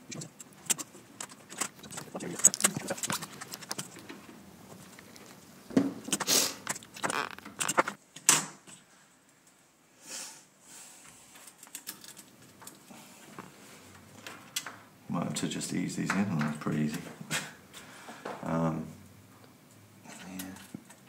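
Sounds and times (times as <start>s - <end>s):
circuit board rattling: 0.1s - 4.2s, 6.0s - 8.0s
faint fiddling with leads: 0.1s - 8.0s.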